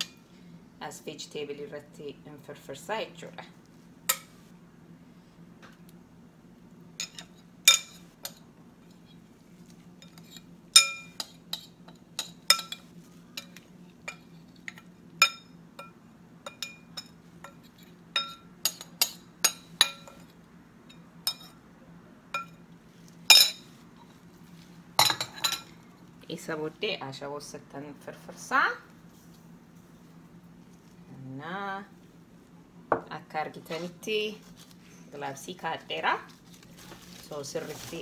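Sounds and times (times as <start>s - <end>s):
spoon clinking against bowls: 10.8s - 17.6s, 18.2s - 20.3s.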